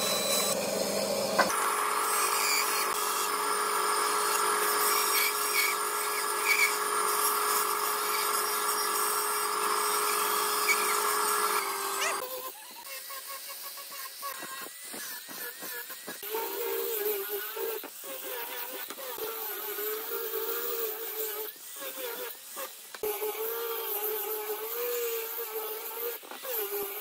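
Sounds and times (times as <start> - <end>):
band saw cutting wood: 0.0 - 21.4.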